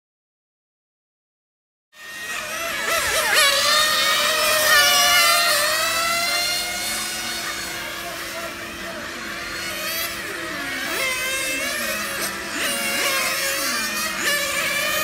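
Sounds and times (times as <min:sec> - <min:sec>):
small racing car engines whining: 0:02.0 - 0:15.0.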